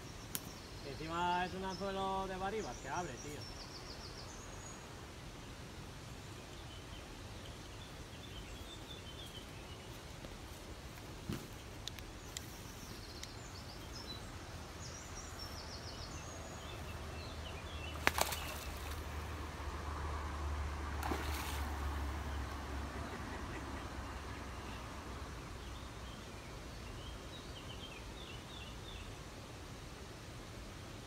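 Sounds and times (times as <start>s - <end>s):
small birds chirping: 0.0s - 19.4s, 21.0s - 29.3s
steady outdoor hiss: 0.0s - 31.0s
fish splashing at surface: 18.0s - 19.2s, 21.0s - 22.0s.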